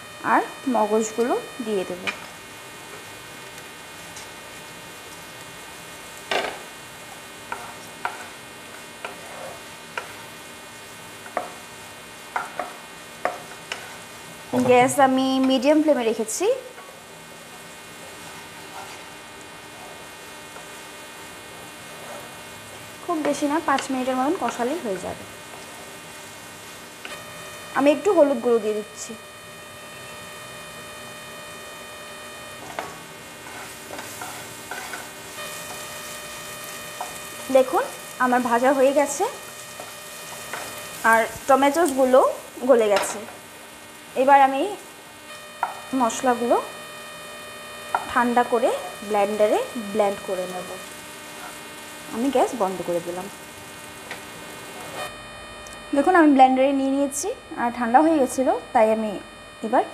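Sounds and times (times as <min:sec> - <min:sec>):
faint steady sizzle: 0:00.0 - 0:59.9
spatula scraping food in a pan: 0:07.5 - 0:10.2, 0:12.3 - 0:14.1, 0:18.2 - 0:19.2, 0:32.6 - 0:38.1.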